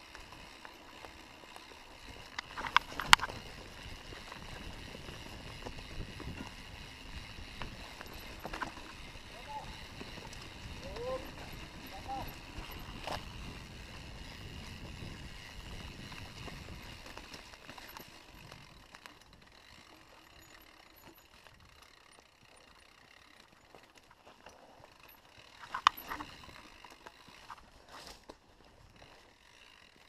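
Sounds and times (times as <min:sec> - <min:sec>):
bike rattles and clicks: 0:00.0 - 0:30.0
low rumble of bike riding: 0:00.0 - 0:30.0.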